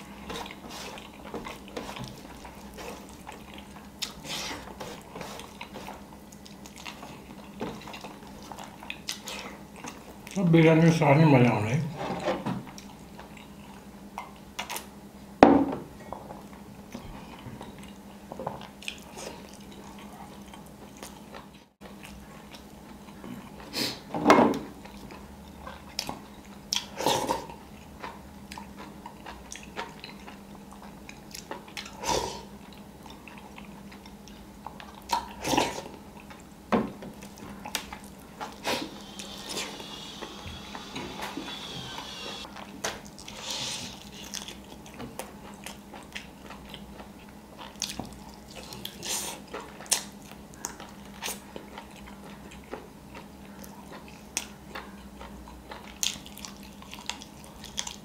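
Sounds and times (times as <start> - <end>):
chewing: 0.0 - 10.4, 12.7 - 14.9, 16.1 - 23.8, 24.6 - 40.9, 41.6 - 58.0.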